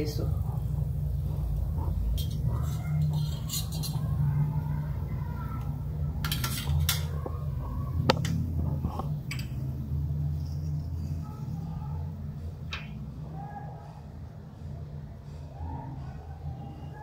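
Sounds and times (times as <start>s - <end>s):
steady low hum: 0.0s - 17.0s
utensils tapping on steel plate: 2.0s - 4.2s, 6.2s - 7.2s, 9.0s - 9.7s.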